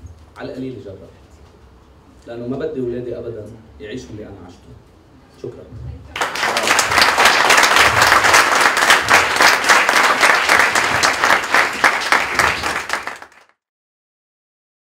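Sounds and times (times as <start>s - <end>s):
audience applauding: 6.2s - 13.6s.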